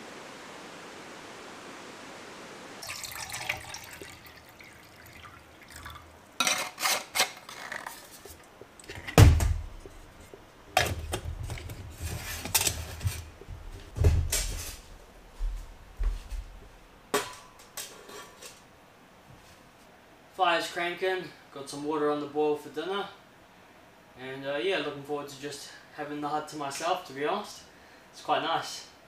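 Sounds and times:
water splashing: 0:02.8 - 0:06.2
metal cookware clinking: 0:05.8 - 0:07.4.

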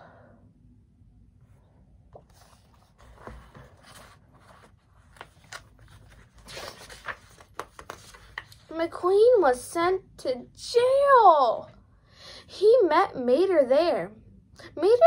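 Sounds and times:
book pages turning: 0:02.1 - 0:08.7.

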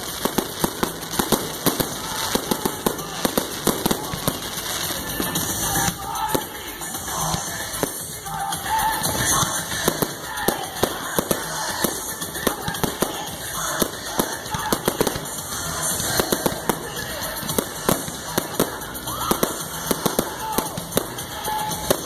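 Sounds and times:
continuous rumble: 0:00.0 - 0:22.0
fireworks bangs and crackles: 0:00.0 - 0:22.0.

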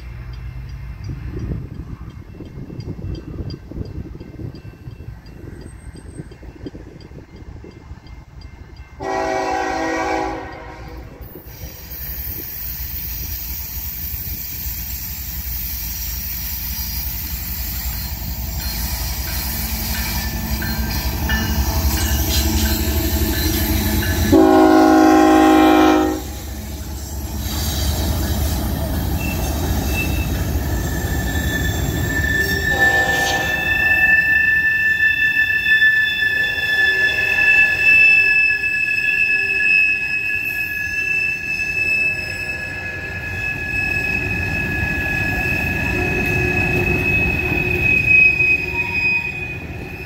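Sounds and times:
locomotive engine rumble: 0:00.0 - 0:33.8
locomotive horn blasts: 0:09.0 - 0:11.2, 0:23.9 - 0:26.7, 0:32.4 - 0:34.2, 0:36.3 - 0:38.2
thin wheel squeal: 0:11.5 - 0:24.3, 0:29.2 - 0:50.0.

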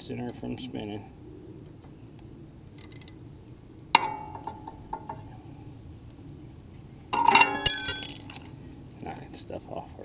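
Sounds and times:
metal tool clinking on valve gear: 0:07.2 - 0:08.6.

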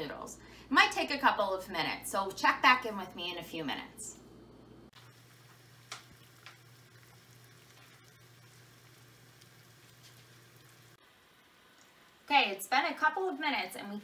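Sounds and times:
water bubbling at a boil: 0:05.0 - 0:11.0.

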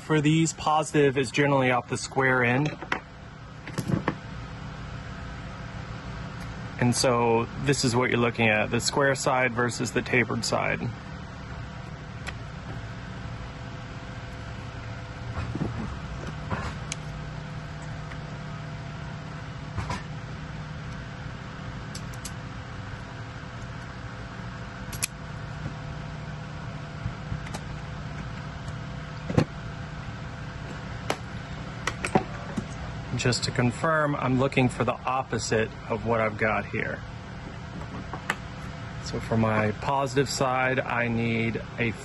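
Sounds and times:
machine humming: 0:00.0 - 0:42.0
wire stripper clicks and taps: 0:24.9 - 0:25.2.

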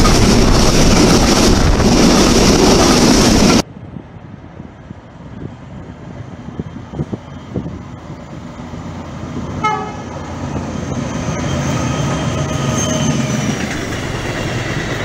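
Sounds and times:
diesel locomotive engine: 0:00.0 - 0:15.0
train horn: 0:09.6 - 0:10.1.

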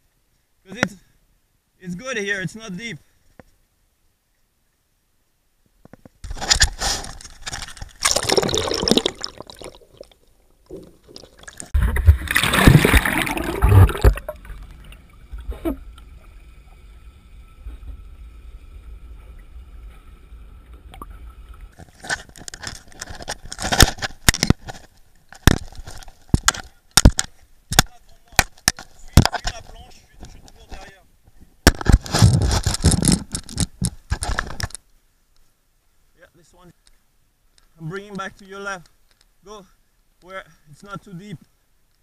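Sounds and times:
water sloshing and gurgling: 0:06.2 - 0:27.3.

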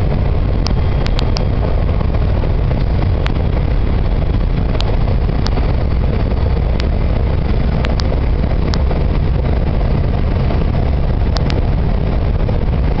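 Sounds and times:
truck cab road rumble: 0:00.0 - 0:13.0
sharp ticks: 0:00.5 - 0:01.6, 0:02.8 - 0:03.4, 0:04.7 - 0:05.7, 0:06.6 - 0:08.9, 0:11.2 - 0:11.7.

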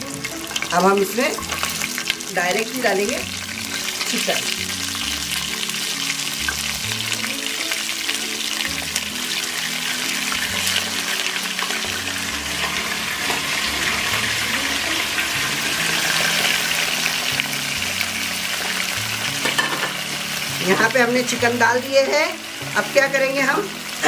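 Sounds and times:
chicken sizzling in hot oil: 0:00.0 - 0:24.0.

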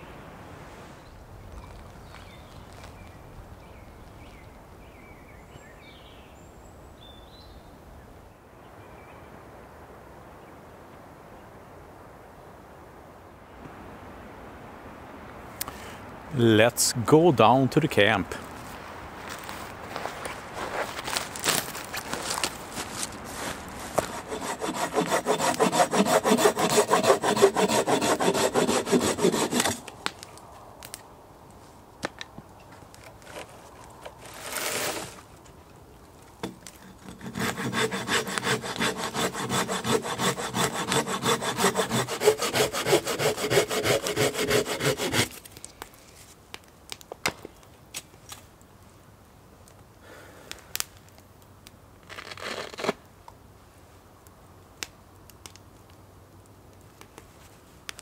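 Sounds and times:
short rustling scrapes: 0:18.6 - 0:24.5, 0:33.1 - 0:35.4
hand saw cutting wood: 0:23.9 - 0:29.8, 0:34.2 - 0:35.2, 0:36.4 - 0:45.4.

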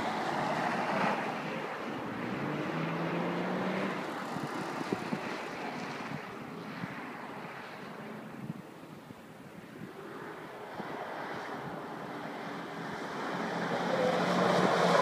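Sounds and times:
wind noise on microphone: 0:03.7 - 0:07.0, 0:13.8 - 0:15.0
car passing close by: 0:10.6 - 0:15.0.

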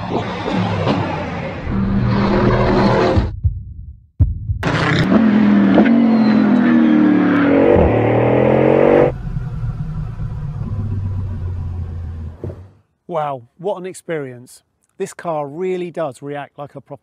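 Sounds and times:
car engine accelerating hard: 0:04.6 - 0:12.7.

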